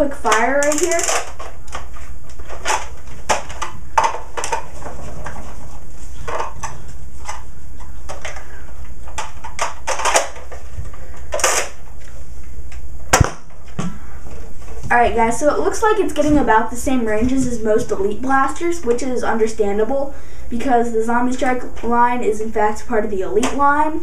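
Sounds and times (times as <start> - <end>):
plastic toy blaster handling clicks: 0.6 - 1.3.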